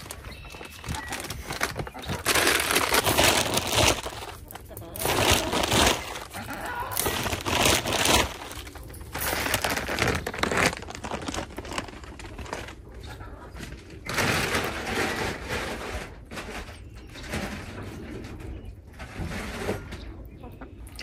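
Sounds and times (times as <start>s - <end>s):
grain rustling and crackling: 0.0s - 12.9s.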